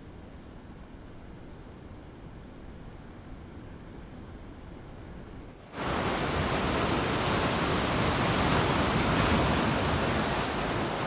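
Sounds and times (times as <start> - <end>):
hiss of breaking whitewater: 5.6 - 11.0
muffled rush: 5.6 - 11.0
surf breaking on rocky shore: 5.6 - 11.0.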